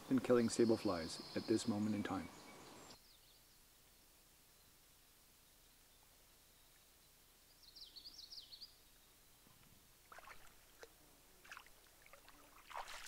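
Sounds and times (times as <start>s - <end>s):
songbird chirping: 0.0s - 13.0s
shallow water splashing: 10.0s - 13.0s.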